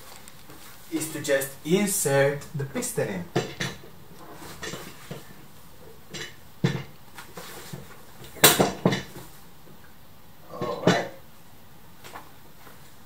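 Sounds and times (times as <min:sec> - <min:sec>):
office chair parts knocking: 0:03.3 - 0:05.4, 0:06.1 - 0:09.3.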